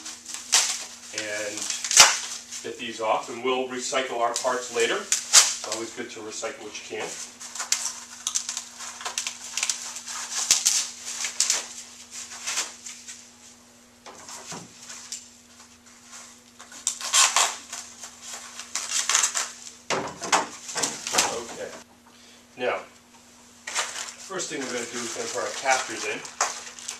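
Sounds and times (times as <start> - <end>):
packing wrap crinkling: 0.0 - 3.4, 7.0 - 13.3, 14.3 - 19.8, 23.6 - 26.9.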